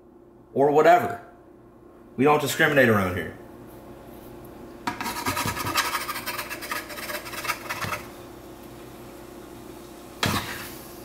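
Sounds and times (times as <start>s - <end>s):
spatula scraping in skillet: 4.9s - 8.2s, 10.2s - 10.9s.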